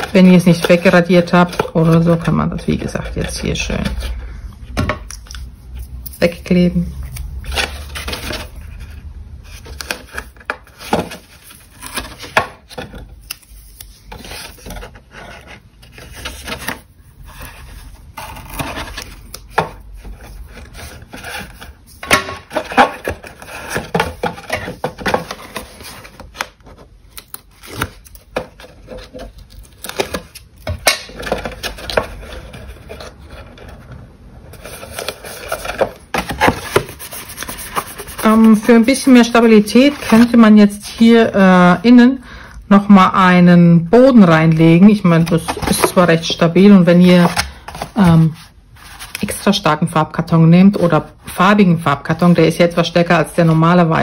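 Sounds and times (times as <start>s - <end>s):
card rustling and scuffing: 4.7s - 33.9s, 34.5s - 40.4s, 45.0s - 49.4s.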